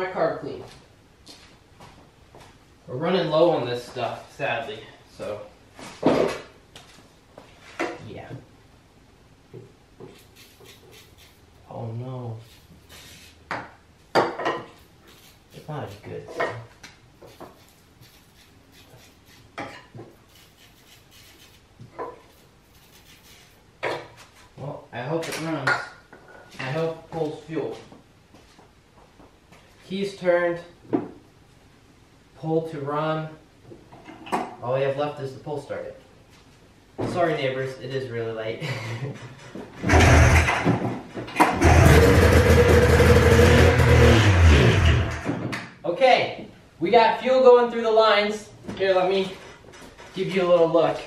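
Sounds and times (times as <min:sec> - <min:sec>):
light rubbing and clicks: 0:10.0 - 0:11.5, 0:17.2 - 0:23.6
engine pull-start: 0:39.8 - 0:40.6, 0:41.4 - 0:45.3
two-stroke engine running: 0:39.9 - 0:40.5, 0:41.6 - 0:45.2.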